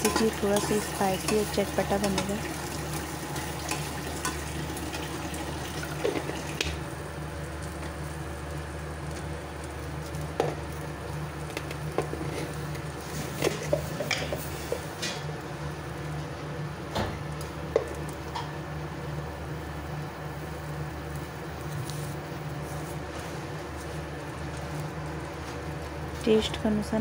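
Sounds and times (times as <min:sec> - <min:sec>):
food sizzling in oil: 0:00.0 - 0:16.1.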